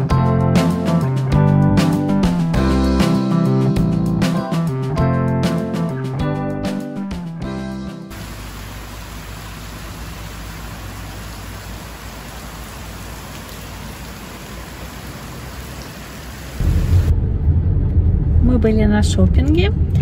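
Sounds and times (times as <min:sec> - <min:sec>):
heavy rain hissing: 0:08.1 - 0:17.1
low rumble: 0:16.6 - 0:20.0.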